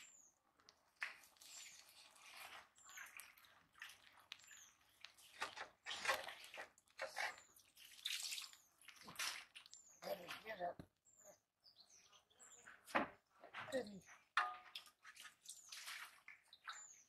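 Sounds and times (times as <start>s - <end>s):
bird chirping: 7.3s - 12.9s.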